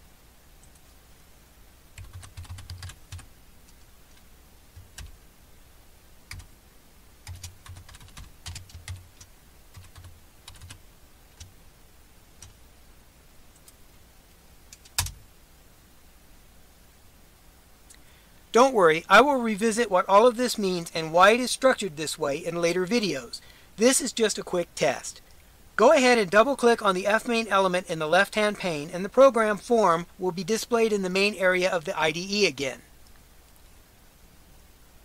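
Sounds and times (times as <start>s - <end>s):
computer keyboard typing: 2.0s - 4.2s, 4.8s - 5.1s, 6.3s - 6.5s, 7.2s - 10.8s, 14.7s - 15.2s.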